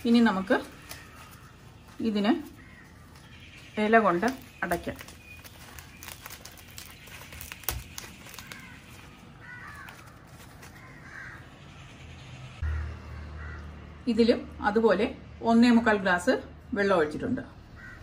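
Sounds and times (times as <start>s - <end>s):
leaf rustling and crumpling: 0.0s - 11.4s
harsh bird calls: 0.0s - 14.0s, 17.7s - 18.0s.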